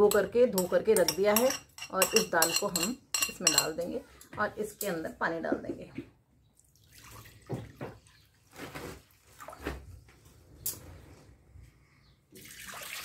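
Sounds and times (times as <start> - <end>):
spoon clicking on metal pot: 0.0 - 3.8.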